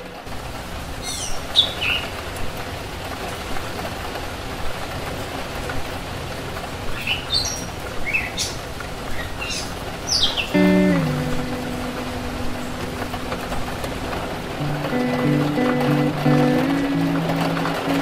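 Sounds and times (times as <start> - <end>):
rain hiss: 0.0 - 18.0.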